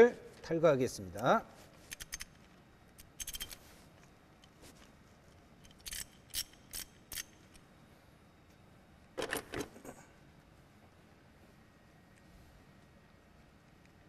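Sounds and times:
ratchet wrench clicking: 3.1s - 3.6s, 5.6s - 7.4s.

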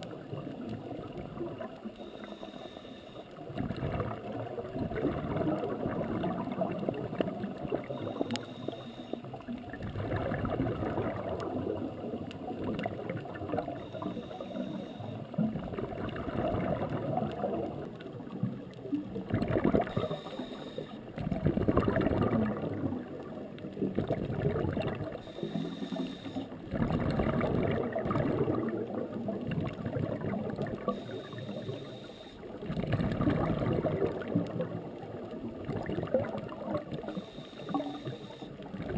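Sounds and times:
diver inhaling through regulator: 2.0s - 3.4s, 7.8s - 9.4s, 13.6s - 15.3s, 19.7s - 21.0s, 25.2s - 26.8s, 30.8s - 32.5s, 37.0s - 38.6s
exhaled bubbles rushing: 3.4s - 8.0s, 9.6s - 13.9s, 15.3s - 20.2s, 21.2s - 25.3s, 26.5s - 31.4s, 32.5s - 37.9s, 38.6s - 38.9s.

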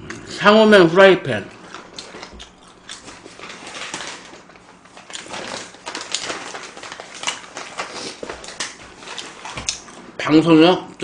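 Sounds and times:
chewing food: 1.6s - 10.1s.

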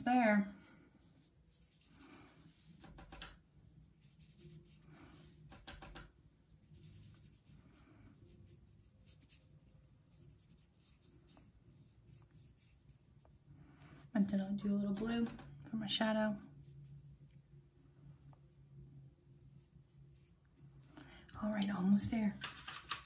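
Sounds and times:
paintbrush swishing on paper: 0.6s - 2.7s, 6.6s - 13.1s.

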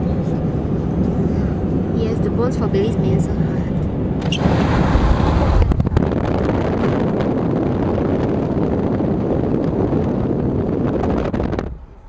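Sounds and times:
car road noise: 0.0s - 12.0s
wind buffeting microphone: 0.0s - 12.0s.

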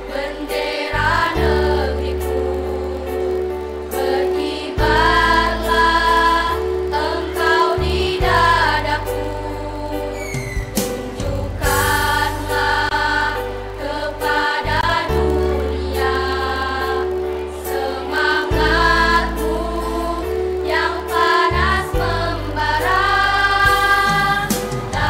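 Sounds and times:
girls' choir singing: 0.0s - 25.0s
low sustained accompaniment chords: 11.2s - 24.9s.

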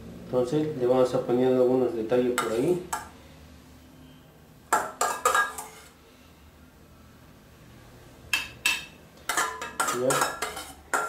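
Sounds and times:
metal spoon clinking on dishes: 2.3s - 3.2s, 4.7s - 5.9s, 8.3s - 11.0s.

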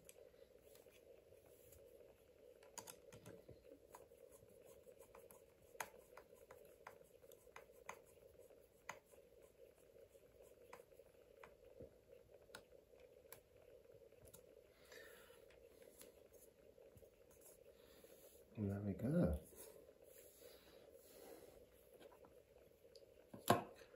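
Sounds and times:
steady hum: 0.0s - 23.9s
small parts clicking and tapping: 2.5s - 4.1s.

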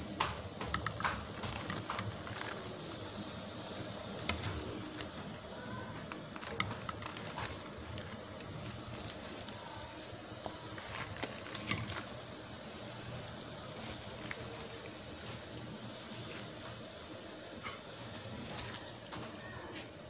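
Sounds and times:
water simmering in pot: 0.0s - 20.0s
sharp clicks and ticks: 0.2s - 2.6s.

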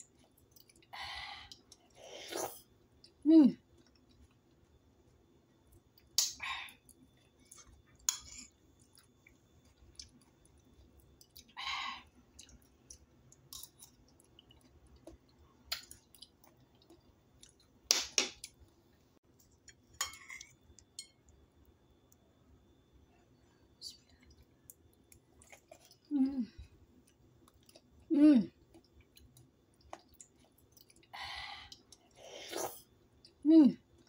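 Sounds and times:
chewing: 0.0s - 0.9s, 6.8s - 11.6s, 12.3s - 17.7s, 24.1s - 33.4s.

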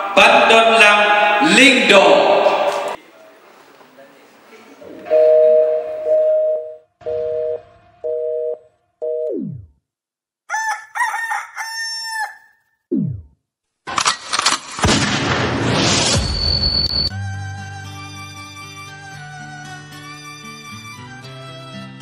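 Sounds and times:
short beeps: 5.1s - 9.6s, 16.2s - 17.1s
rooster crow sound effect: 10.5s - 12.6s.

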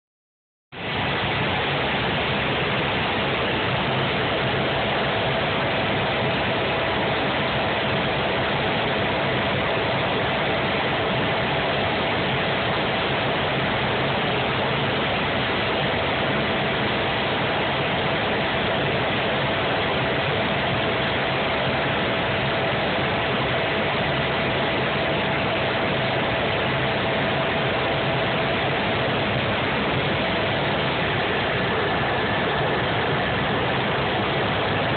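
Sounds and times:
helicopter cabin noise with whine: 0.8s - 34.9s.

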